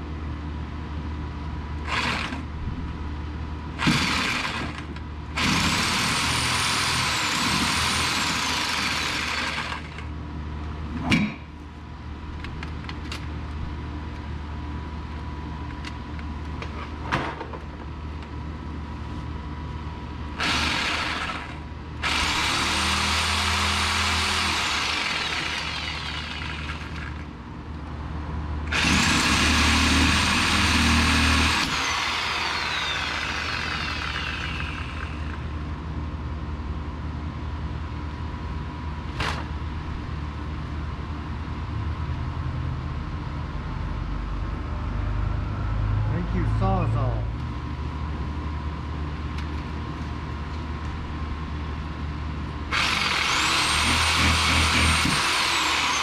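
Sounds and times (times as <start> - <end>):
reciprocating saw cutting metal: 28.7 - 35.4, 52.7 - 56.0.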